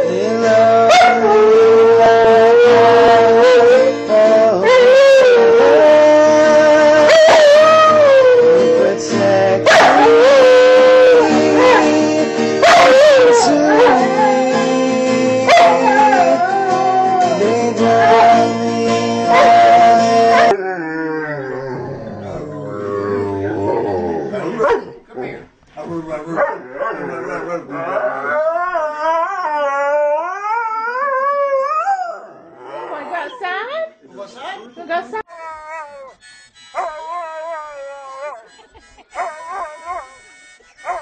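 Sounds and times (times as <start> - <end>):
instrumental music: 0.0 - 20.6, 35.3 - 41.0
dog howling: 0.8 - 4.0, 4.6 - 8.9, 9.7 - 12.0, 12.6 - 18.6, 19.3 - 25.0, 26.2 - 33.1, 36.8 - 38.5
dog whining: 19.4 - 25.0, 34.4 - 41.0.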